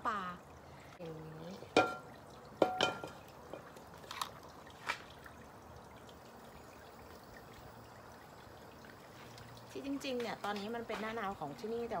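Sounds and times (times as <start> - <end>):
frying pan knocking: 1.7 - 3.7
frying pan clanking on metal grate: 1.8 - 3.6.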